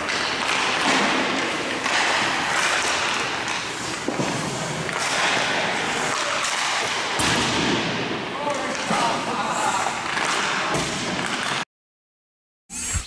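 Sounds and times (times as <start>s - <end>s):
skate blades scraping ice: 0.0s - 7.2s
stick knocking puck: 0.0s - 7.5s.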